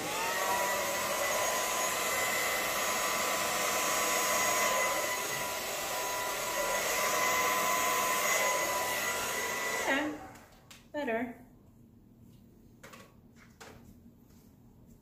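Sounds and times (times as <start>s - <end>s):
hair dryer blowing: 0.0s - 10.6s.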